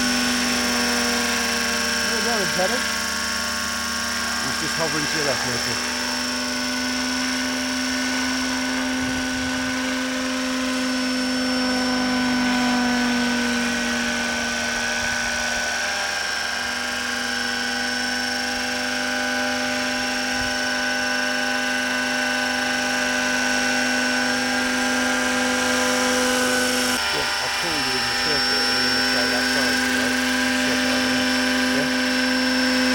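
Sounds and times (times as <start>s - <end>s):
model helicopter whine: 0.0s - 32.9s.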